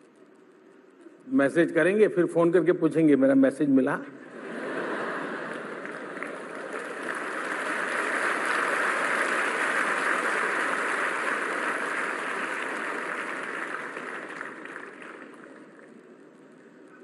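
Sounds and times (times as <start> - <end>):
audience laughing: 4.3 - 6.9
audience applauding: 4.9 - 16.3.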